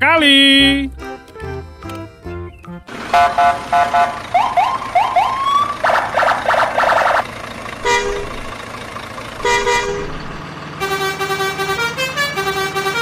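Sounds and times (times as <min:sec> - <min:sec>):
short double honks: 0:03.1 - 0:04.2, 0:07.8 - 0:08.4, 0:09.4 - 0:13.0
multi-tone horn playing a tune: 0:10.8 - 0:13.0.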